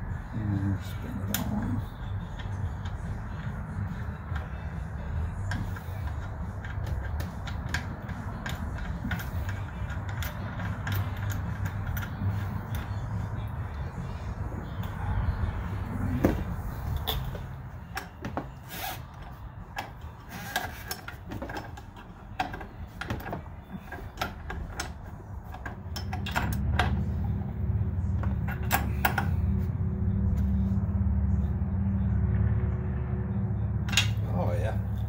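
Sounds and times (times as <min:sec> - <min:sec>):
steady low rumble: 0:00.0 - 0:20.3, 0:21.2 - 0:35.0.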